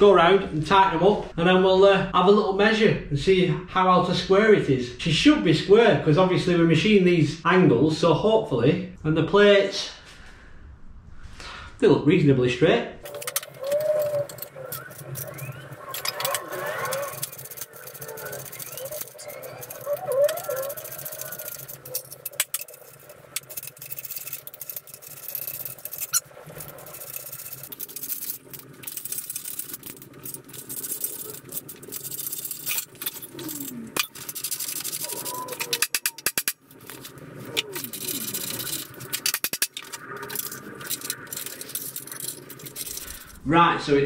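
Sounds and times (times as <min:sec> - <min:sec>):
nuts squeaking: 0:13.0 - 0:43.4
ratchet clicking: 0:13.1 - 0:35.2
tools clinking on metal: 0:13.1 - 0:43.3.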